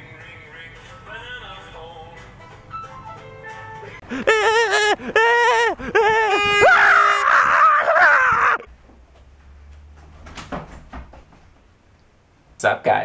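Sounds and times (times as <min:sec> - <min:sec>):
man screaming in wavering wails: 0:04.1 - 0:08.7.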